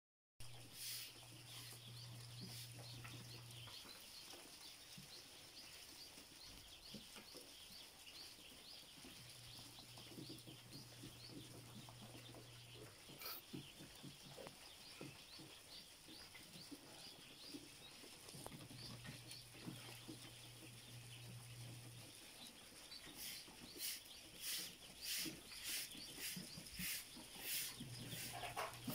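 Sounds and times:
ducklings peeping: 0.4 - 28.9.

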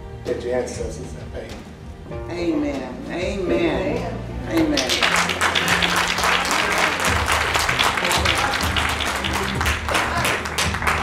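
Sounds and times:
background music low notes: 0.0 - 11.0
audience applauding: 4.6 - 11.0.

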